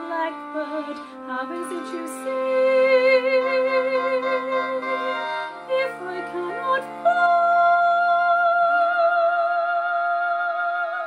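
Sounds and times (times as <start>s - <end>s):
sustained accompaniment chords: 0.0s - 8.7s
woman singing soprano: 0.0s - 11.0s.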